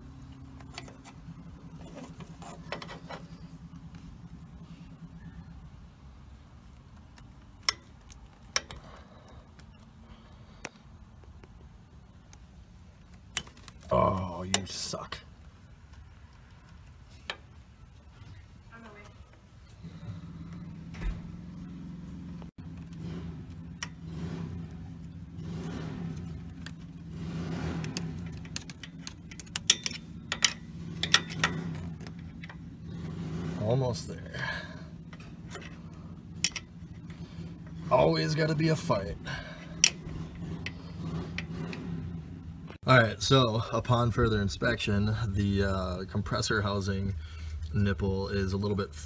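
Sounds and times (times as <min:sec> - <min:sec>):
steady low hum: 0:00.0 - 0:49.0
tools clicking and scraping on metal: 0:00.3 - 0:03.5, 0:07.0 - 0:09.9, 0:22.8 - 0:33.6, 0:34.9 - 0:37.9, 0:39.3 - 0:42.8
pliers and hose clamp clicking: 0:27.9 - 0:32.6, 0:36.4 - 0:36.7.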